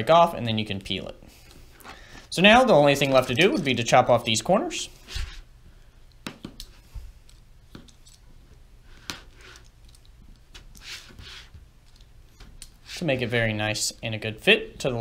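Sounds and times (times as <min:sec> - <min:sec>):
knife scraping strokes: 0:10.8 - 0:11.6.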